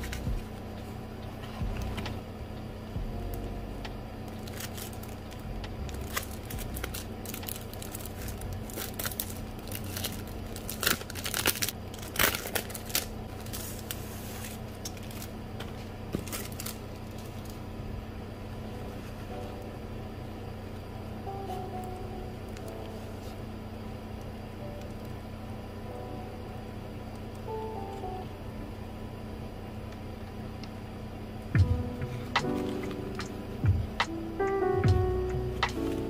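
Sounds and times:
plastic sleeve crinkling: 4.3 - 15.4, 16.2 - 17.6
paper rustling: 6.0 - 17.5.

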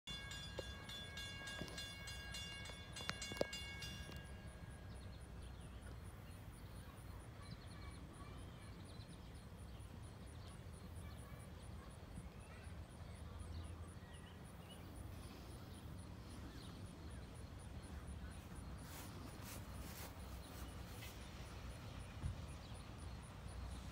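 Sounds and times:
high steady tones: 0.1 - 5.4
faint bird chirps: 3.0 - 23.9.

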